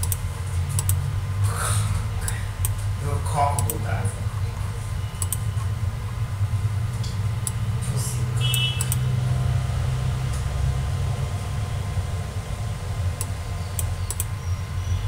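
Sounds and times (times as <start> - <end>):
steady low hum: 0.0 - 15.0
faint sharp clicks: 5.2 - 5.4, 8.5 - 9.0, 13.2 - 14.3.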